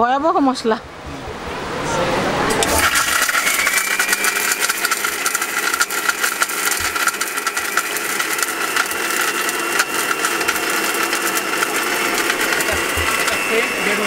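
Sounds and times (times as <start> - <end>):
mixer grinder motor whine: 2.6 - 14.0.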